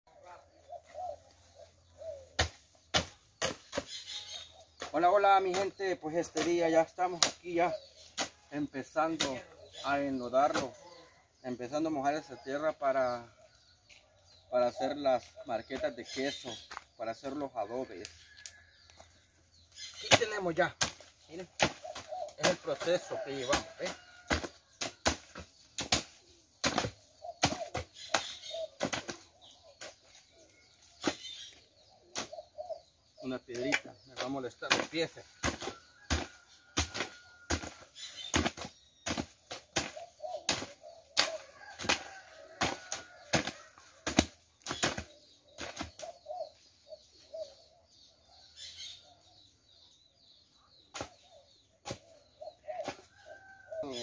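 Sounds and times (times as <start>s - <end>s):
faint bird chirping: 0.1s - 20.6s, 25.6s - 54.0s
hoes chopping and scraping earth: 2.3s - 10.8s, 19.6s - 32.9s, 33.5s - 46.5s, 50.8s - 54.0s.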